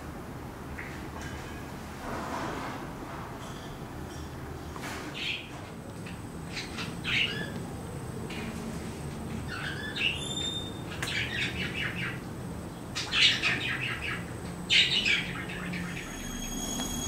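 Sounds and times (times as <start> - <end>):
bird chirps: 9.5 - 12.2.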